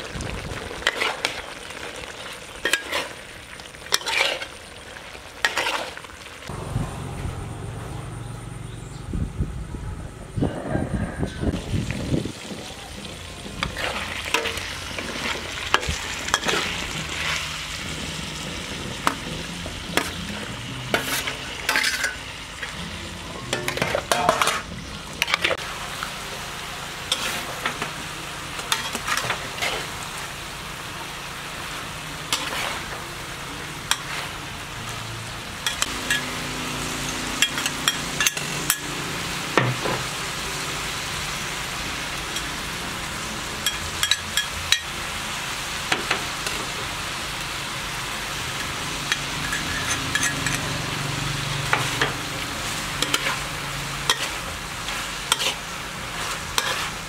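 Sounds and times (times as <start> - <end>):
food sizzling in a wok: 0.0 - 8.7, 10.7 - 57.0
spatula scraping a wok: 0.6 - 6.2, 13.5 - 25.6, 27.0 - 30.4, 31.6 - 40.2, 48.4 - 57.0.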